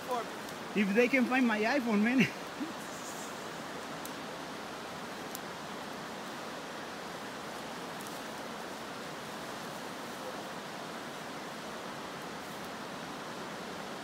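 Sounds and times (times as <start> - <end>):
river rushing over rapids: 0.0 - 14.0
faint clicks: 4.0 - 4.2, 5.2 - 5.5.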